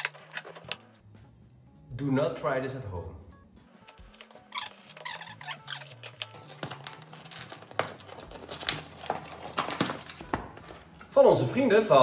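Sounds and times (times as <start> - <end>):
cardboard box torn open: 4.6 - 10.4.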